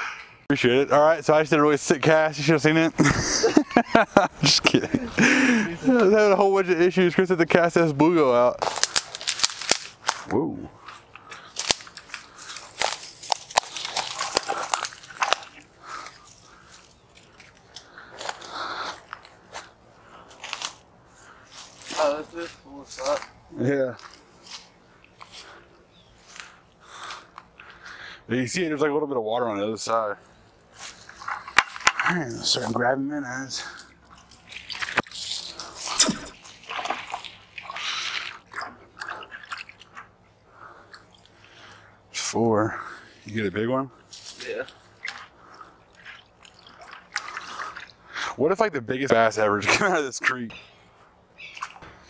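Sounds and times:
twigs cracking and crunching: 0:08.5 - 0:20.8, 0:33.6 - 0:37.2
water splashing in a bucket: 0:33.8 - 0:40.2, 0:45.0 - 0:48.1.

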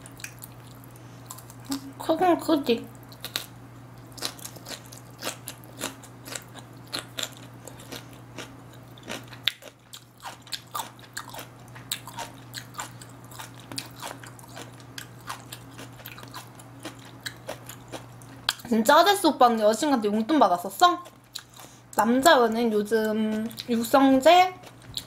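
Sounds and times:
thin low hum: 0:00.0 - 0:25.0
wet crunchy chewing: 0:03.1 - 0:18.6.

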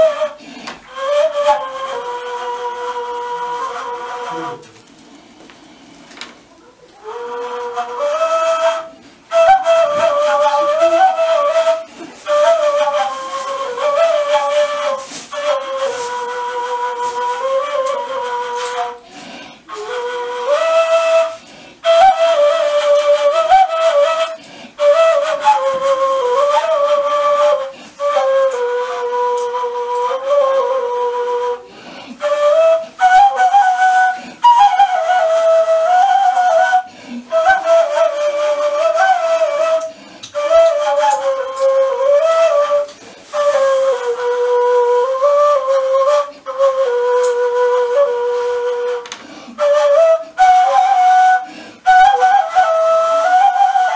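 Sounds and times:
flute solo melody: 0:00.0 - 0:04.8, 0:06.9 - 0:53.9.

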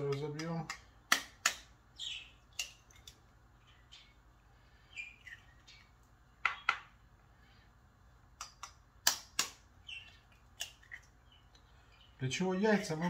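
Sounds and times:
knife tapping eggshell: 0:00.0 - 0:01.7, 0:02.5 - 0:03.2, 0:06.4 - 0:07.0, 0:08.4 - 0:11.6
eggshell crackling: 0:00.0 - 0:07.3, 0:08.2 - 0:13.0.

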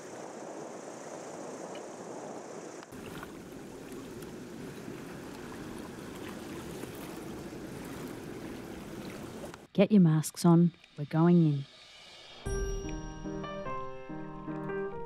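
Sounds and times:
wind: 0:00.0 - 0:13.4
water sloshing against hull: 0:02.9 - 0:09.7.

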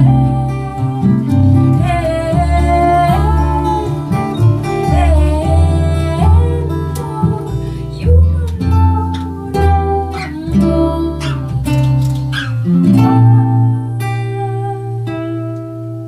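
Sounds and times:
classical guitar: 0:00.0 - 0:16.0
double bass low notes: 0:00.0 - 0:16.0
woman singing folk song: 0:00.0 - 0:16.0.

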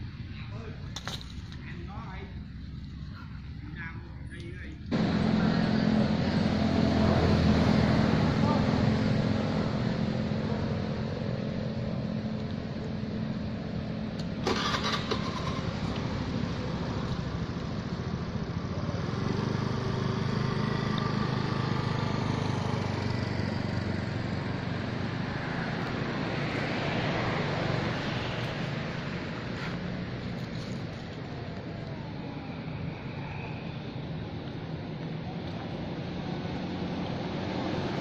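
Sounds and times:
engine running: 0:04.6 - 0:38.0.

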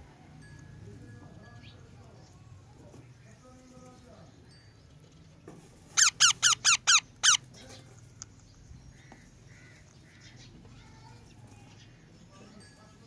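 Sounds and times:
parrot high-pitched calls: 0:06.0 - 0:07.5.

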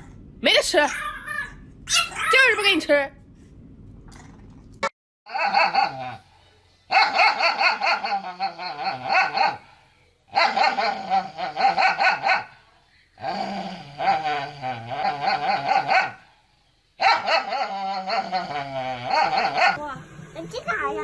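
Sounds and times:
dog barking and howling: 0:05.3 - 0:06.2, 0:06.9 - 0:09.7, 0:10.3 - 0:12.6, 0:15.1 - 0:16.2, 0:17.0 - 0:19.8.

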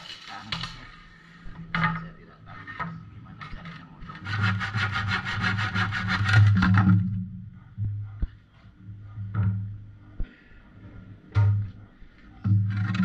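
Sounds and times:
hand saw cutting wood: 0:04.2 - 0:06.6.

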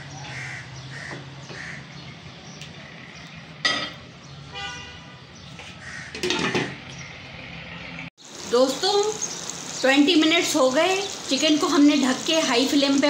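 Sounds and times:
vehicle horn toot: 0:04.5 - 0:05.2.

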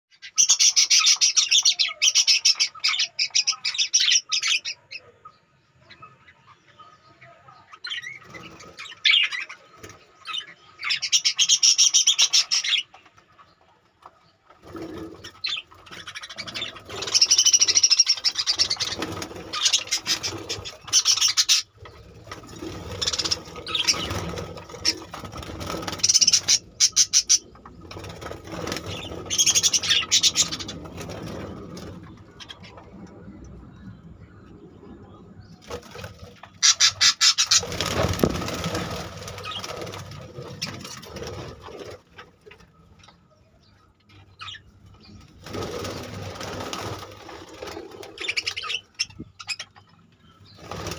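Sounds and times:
budgerigars chattering and screeching: 0:00.1 - 0:13.6, 0:14.4 - 0:32.9, 0:35.0 - 0:50.9
rustling and knocking: 0:37.9 - 0:38.9.

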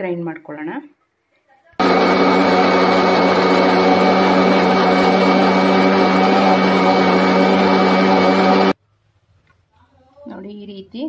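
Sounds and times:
mixer grinder motor drone: 0:01.8 - 0:08.8.

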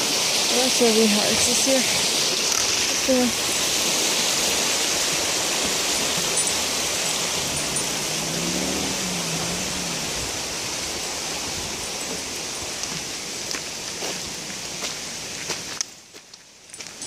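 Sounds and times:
rushing river water: 0:00.0 - 0:17.0.

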